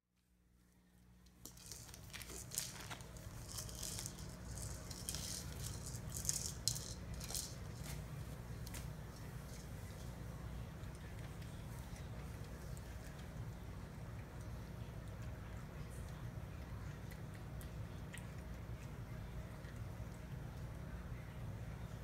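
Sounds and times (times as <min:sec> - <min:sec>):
treat ball rattling on tile: 0:01.3 - 0:10.2.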